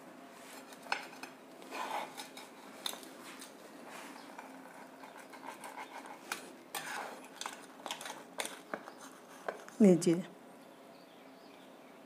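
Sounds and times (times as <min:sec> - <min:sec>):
pizza cutter crunching crust: 0:00.6 - 0:03.6, 0:04.2 - 0:09.7.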